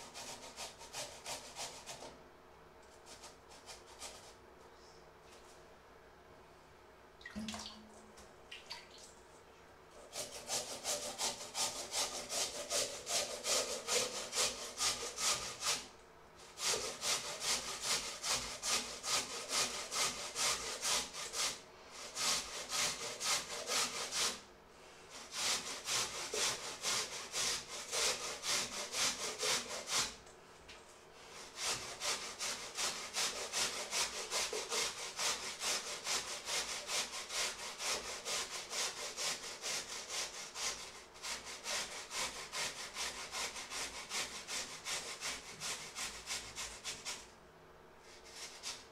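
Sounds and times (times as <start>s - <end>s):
potatoes grated on metal grater: 0.0s - 2.1s, 10.0s - 24.4s, 25.2s - 30.2s, 31.3s - 47.3s, 48.0s - 48.9s.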